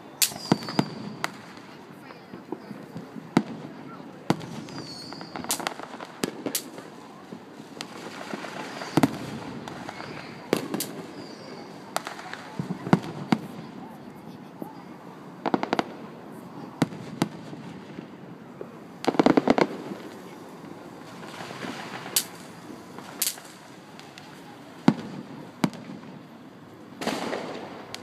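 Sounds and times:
rattle of firework cracks: 0.2s - 1.8s, 4.3s - 7.0s, 7.8s - 13.4s, 15.4s - 16.0s, 16.8s - 26.3s, 27.0s - 28.0s
distant firework shells bursting: 16.8s - 26.3s, 27.0s - 28.0s.

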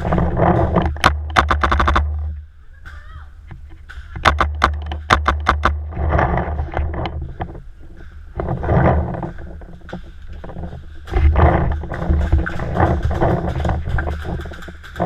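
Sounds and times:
rustling and scraping: 0.0s - 15.0s.

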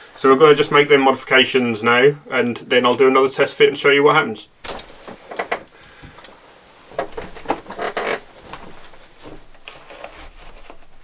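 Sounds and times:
cloth rustling: 4.6s - 11.0s.

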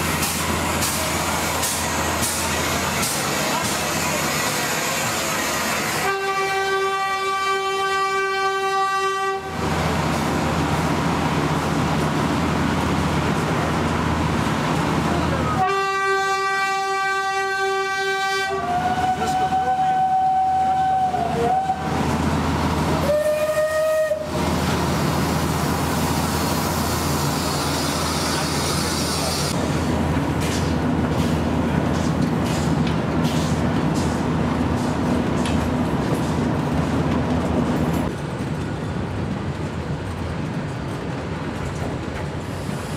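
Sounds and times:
moving train rumble: 0.0s - 42.9s
train horn blasts: 6.0s - 9.6s, 15.5s - 21.9s, 23.0s - 24.4s
train whistle notes: 6.0s - 9.6s, 15.6s - 22.0s, 23.0s - 24.4s.

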